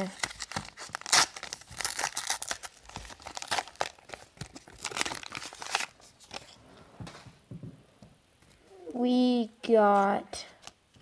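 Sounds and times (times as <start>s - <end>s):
foil wrapper crinkling and tearing: 0.0s - 6.5s.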